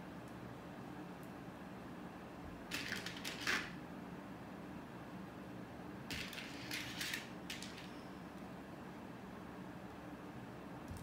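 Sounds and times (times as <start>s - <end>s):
plastic pieces clicking on tray: 2.7s - 3.7s.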